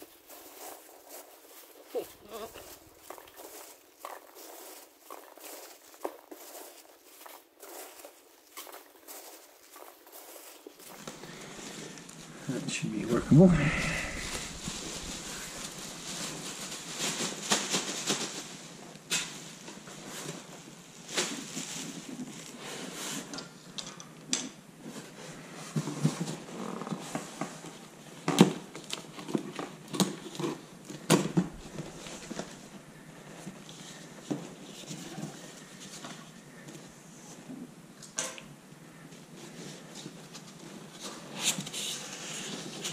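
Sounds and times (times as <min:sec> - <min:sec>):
cardboard and packing peanuts rustling: 0:00.0 - 0:12.4, 0:13.0 - 0:23.3, 0:24.9 - 0:36.9, 0:39.3 - 0:42.9
plastic bag crinkling: 0:13.3 - 0:18.7.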